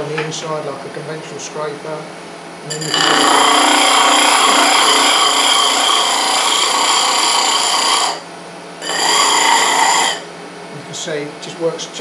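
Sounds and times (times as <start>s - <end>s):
lathe low hum: 2.6s - 10.6s
tool scraping wood on lathe: 2.7s - 10.3s.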